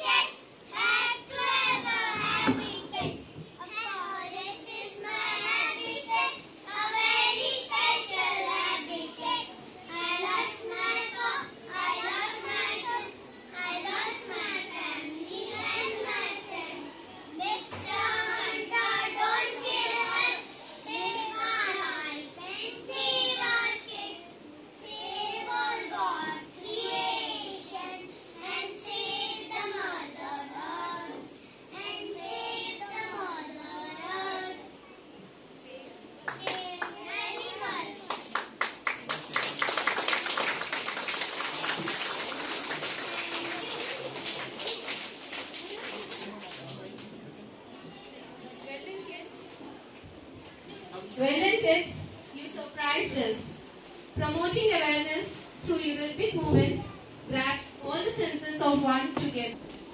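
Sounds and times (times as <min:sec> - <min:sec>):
girls singing together: 0:00.0 - 0:03.6, 0:22.5 - 0:24.2, 0:24.9 - 0:34.6
girls singing into a microphone: 0:00.8 - 0:03.1.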